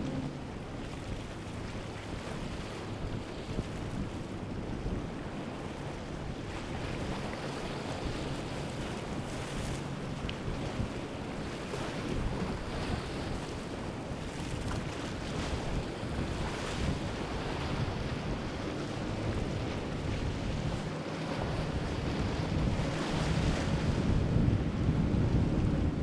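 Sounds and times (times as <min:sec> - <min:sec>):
boat engine hum: 0:00.0 - 0:26.0
waves and surf: 0:00.0 - 0:26.0
wind buffeting microphone: 0:00.0 - 0:26.0.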